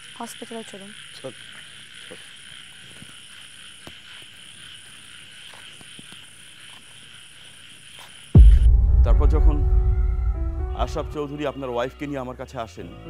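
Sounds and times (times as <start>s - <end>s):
insect trill: 0.0s - 8.9s
pulsing high tone: 8.4s - 11.4s.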